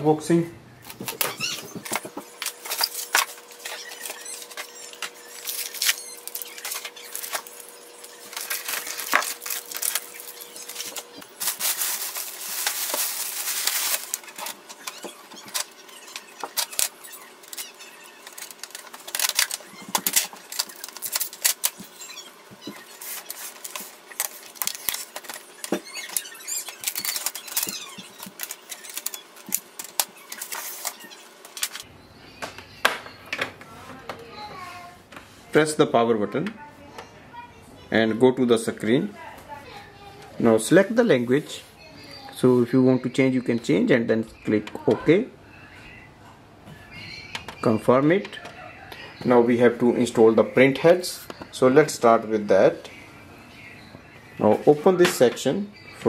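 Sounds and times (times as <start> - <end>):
plastic packing rustling and squeaking: 0.8 - 31.9.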